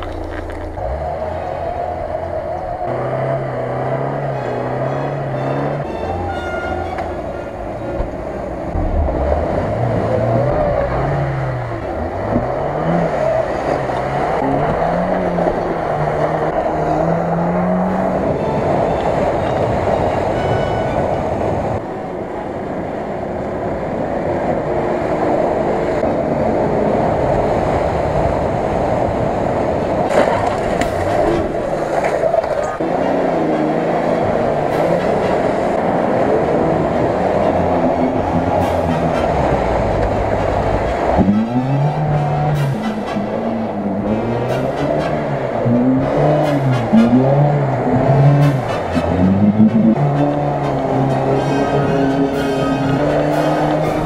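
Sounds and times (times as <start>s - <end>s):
off-road engines revving: 0.0s - 21.8s, 23.7s - 54.0s
engine running under load: 0.0s - 54.0s.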